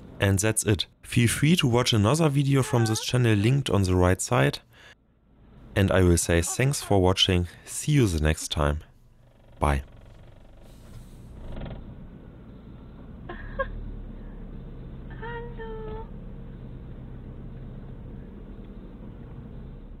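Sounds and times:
high-pitched cries: 0:02.6 - 0:03.2
car rumbling on dirt track: 0:09.3 - 0:20.0.

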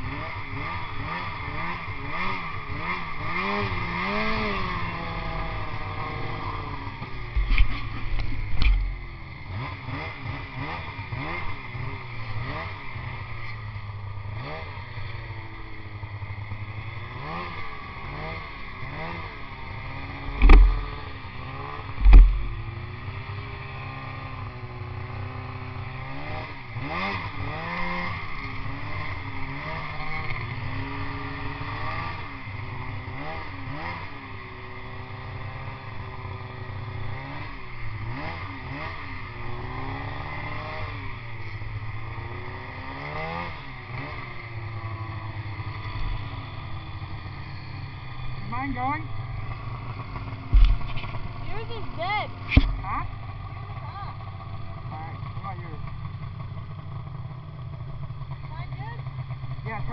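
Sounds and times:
snowmobile engine revving: 0:00.0 - 0:59.9
heavy thumps: 0:20.3 - 0:21.0, 0:22.0 - 0:22.7, 0:50.5 - 0:51.2, 0:52.5 - 0:53.0.

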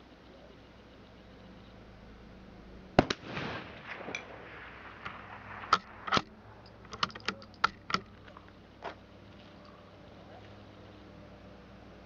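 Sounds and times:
rifle shot: 0:03.0 - 0:08.1
rifle bolt clicking: 0:05.0 - 0:08.4.

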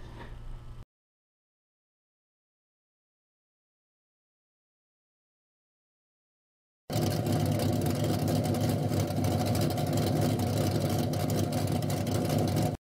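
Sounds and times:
car engine running: 0:06.9 - 0:12.8.

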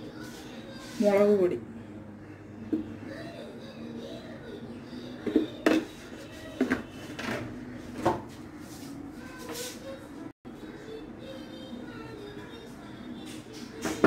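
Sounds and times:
kitchenware knocking and clattering: 0:05.2 - 0:06.0.

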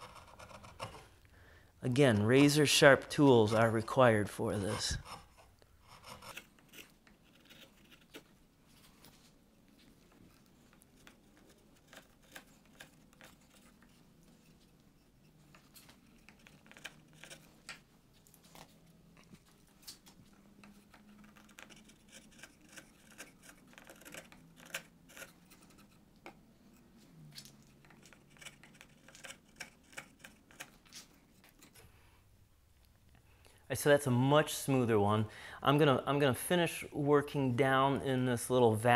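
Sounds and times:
chisel scraping wood: 0:00.0 - 0:01.2, 0:02.2 - 0:08.3, 0:10.3 - 0:17.8, 0:20.6 - 0:26.8, 0:27.5 - 0:31.9.

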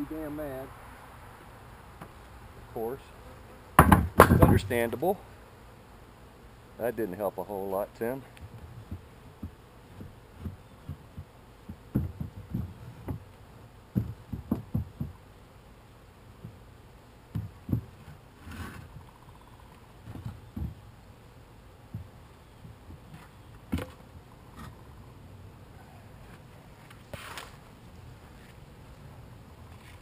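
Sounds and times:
wooden boxes thumping and knocking: 0:03.8 - 0:04.8, 0:08.8 - 0:13.3, 0:13.9 - 0:15.2, 0:17.3 - 0:18.2, 0:20.0 - 0:20.9, 0:21.9 - 0:24.0.

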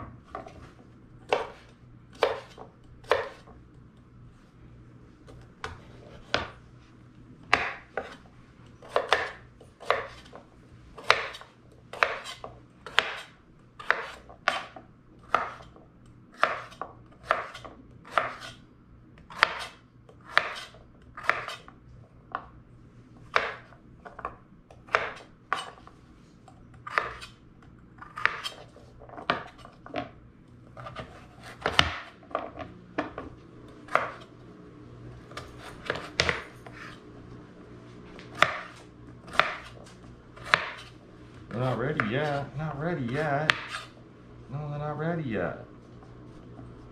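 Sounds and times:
knife chopping on wooden board: 0:01.3 - 0:03.6, 0:05.3 - 0:06.6, 0:07.5 - 0:08.2, 0:08.8 - 0:10.4, 0:11.0 - 0:15.7, 0:16.4 - 0:18.6, 0:19.3 - 0:21.7, 0:23.3 - 0:24.3, 0:24.9 - 0:25.8, 0:26.8 - 0:27.4, 0:28.0 - 0:30.1, 0:30.8 - 0:33.2, 0:33.9 - 0:34.3, 0:35.3 - 0:37.0, 0:38.3 - 0:40.9, 0:43.1 - 0:43.9.

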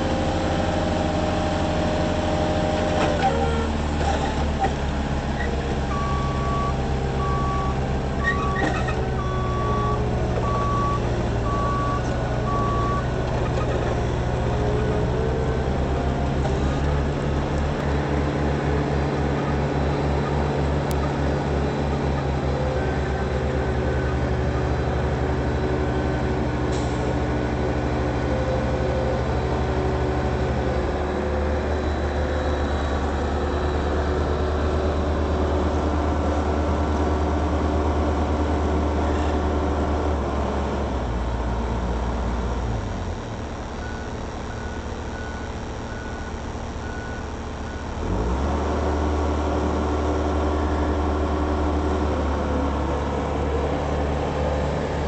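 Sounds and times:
diesel engine running: 0:00.0 - 0:55.0
reversing alarm beeping: 0:05.9 - 0:13.1, 0:43.8 - 0:48.0.

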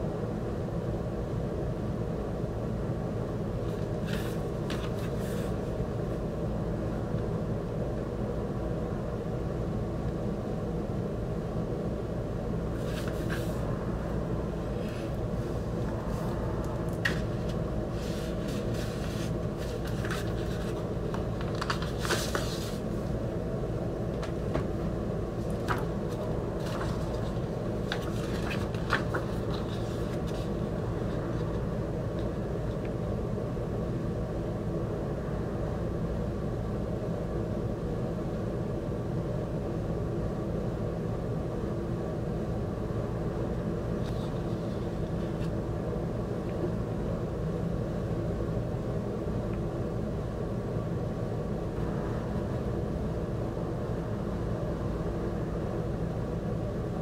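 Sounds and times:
low machine hum: 0:00.0 - 0:57.0
paper and plastic rustling: 0:03.7 - 0:05.6, 0:12.8 - 0:13.6, 0:17.0 - 0:22.9, 0:25.4 - 0:31.6.

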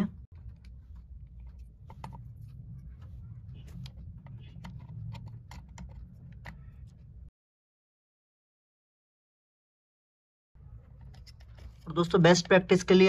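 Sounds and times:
low steady hum: 0:00.0 - 0:07.3.

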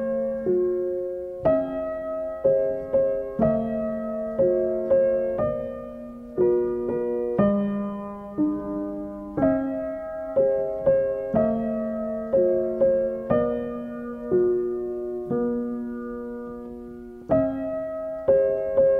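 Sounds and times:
slow gentle piano music: 0:00.0 - 0:18.9.

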